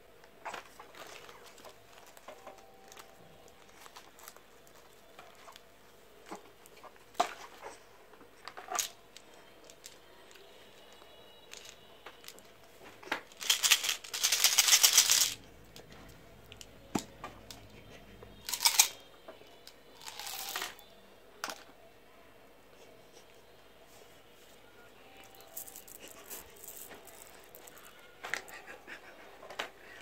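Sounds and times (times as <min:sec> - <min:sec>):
candies rattling in plastic tube: 0:13.1 - 0:15.4, 0:18.5 - 0:19.0, 0:20.0 - 0:20.8, 0:25.3 - 0:28.5
plastic packaging crinkling: 0:13.1 - 0:15.4, 0:20.0 - 0:20.8, 0:25.2 - 0:28.0.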